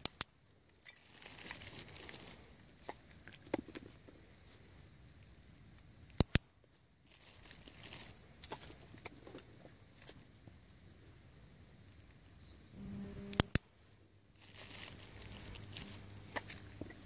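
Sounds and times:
dog snuffling in grass and leaves: 0.9s - 2.7s, 13.8s - 17.0s.

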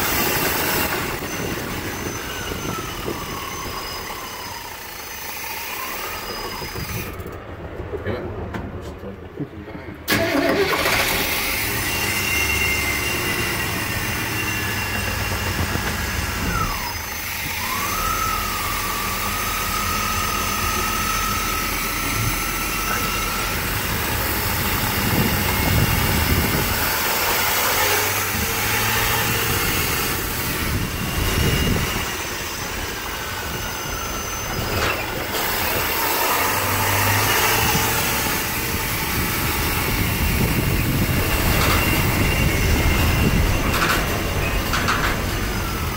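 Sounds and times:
car engine running: 10.8s - 45.9s.

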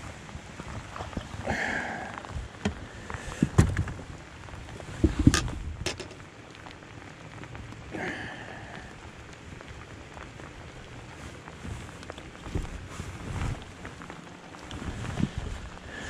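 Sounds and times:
rain pattering: 0.0s - 16.0s.

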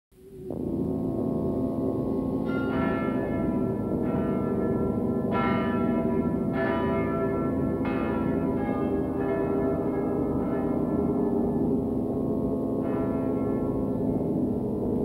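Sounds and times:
deep sustained drone: 0.2s - 15.0s
bell tolling: 2.5s - 11.8s.

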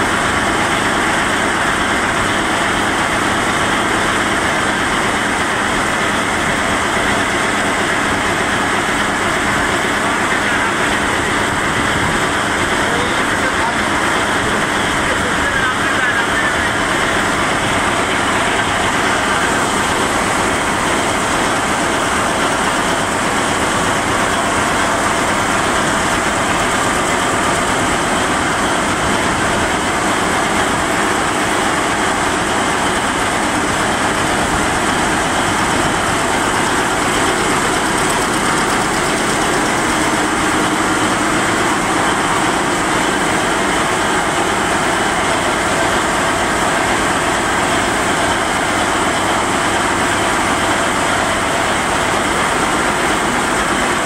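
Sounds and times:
weaving loom clattering: 16.8s - 54.0s.

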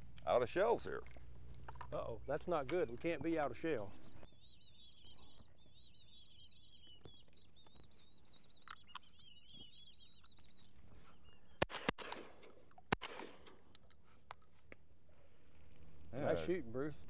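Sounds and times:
ducks whistling: 3.8s - 11.7s
shotgun shots: 11.6s - 13.7s.

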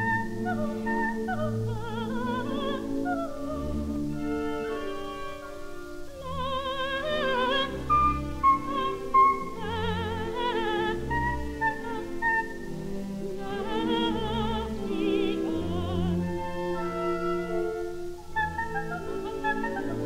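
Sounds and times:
orchestra playing: 0.0s - 20.0s
soprano singing trills: 0.0s - 20.0s.

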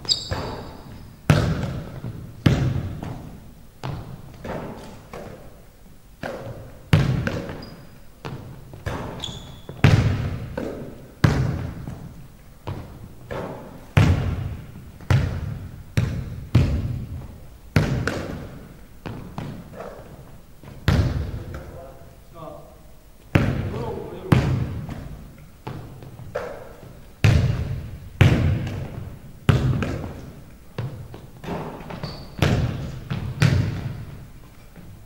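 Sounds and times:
shoe squeaks: 0.0s - 1.2s, 7.5s - 8.0s, 9.0s - 9.9s, 31.8s - 32.4s
basketball bouncing on wooden floor: 0.0s - 5.4s, 6.2s - 21.6s, 23.3s - 23.7s, 24.3s - 34.2s.

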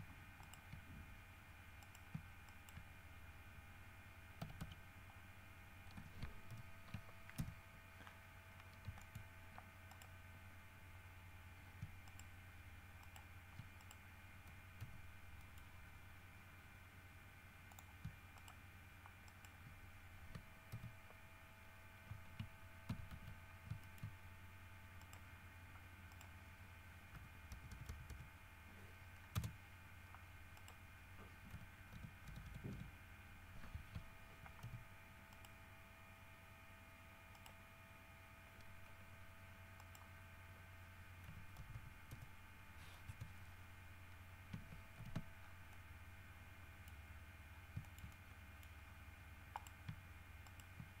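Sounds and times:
low electrical hum: 0.0s - 51.0s
keyboard and mouse clicks: 0.4s - 0.9s, 1.8s - 2.9s, 4.4s - 4.8s, 5.8s - 10.2s, 11.8s - 12.3s, 13.0s - 15.7s, 17.7s - 21.2s, 22.0s - 24.2s, 25.0s - 25.3s, 26.0s - 26.4s, 27.1s - 28.3s, 29.3s - 32.9s, 33.7s - 35.6s, 37.3s - 37.6s, 41.2s - 42.3s, 44.5s - 45.8s, 47.7s - 48.8s, 49.5s - 51.0s.

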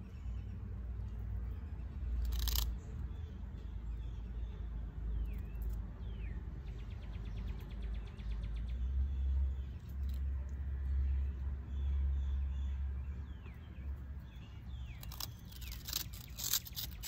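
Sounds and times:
animal crunching bread: 2.2s - 2.8s, 14.9s - 17.0s
falling bird chirps: 14.3s - 17.0s
rapid ticks: 14.9s - 17.0s.

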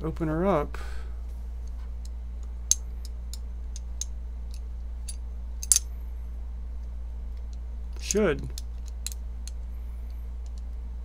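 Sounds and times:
pocket knife parts clicking: 2.7s - 5.9s.

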